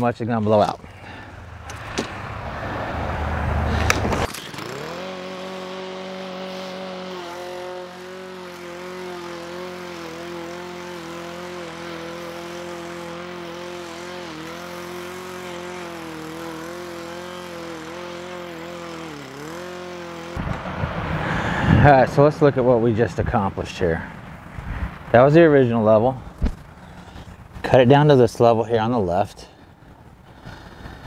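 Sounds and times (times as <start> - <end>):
lawn mower engine running: 0.8 - 28.2, 29.0 - 31.0.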